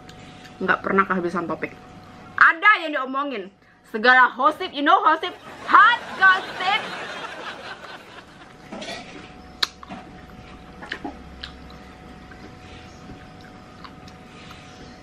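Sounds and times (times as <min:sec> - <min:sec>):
chewing and mouth smacks: 0:09.6 - 0:14.8.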